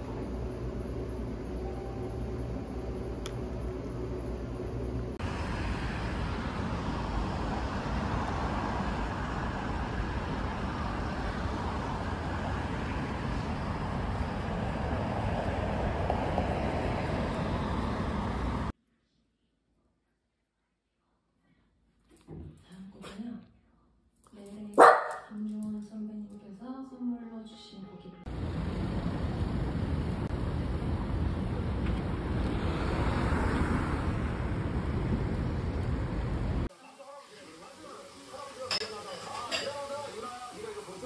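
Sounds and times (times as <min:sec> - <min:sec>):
city road traffic rushing: 0:00.0 - 0:18.7, 0:28.2 - 0:36.7.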